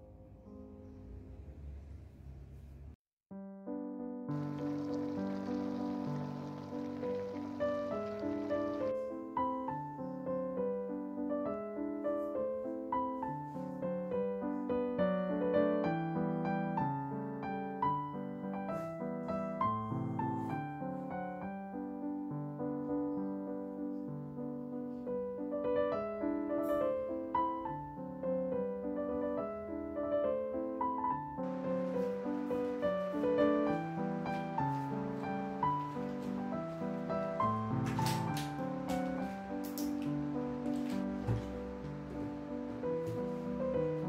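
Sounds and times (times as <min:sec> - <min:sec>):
soft solo piano music: 0:03.4 - 0:44.0
water hiss: 0:04.4 - 0:08.9.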